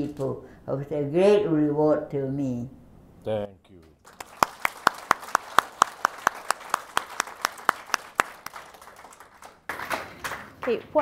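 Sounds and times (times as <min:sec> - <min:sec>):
audience applauding: 0:04.0 - 0:10.5
loud hand claps close by: 0:04.0 - 0:10.7.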